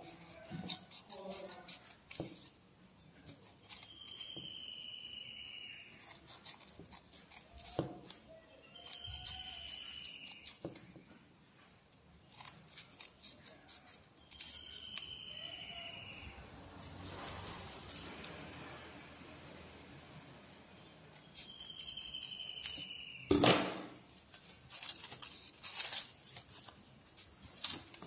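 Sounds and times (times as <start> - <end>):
scissors snipping paper: 0.0 - 2.6, 3.2 - 4.5, 6.0 - 11.0, 12.2 - 20.4, 21.0 - 28.0
thin high whistle-like tone: 3.8 - 6.2, 8.3 - 10.7, 14.2 - 16.4, 20.8 - 23.4.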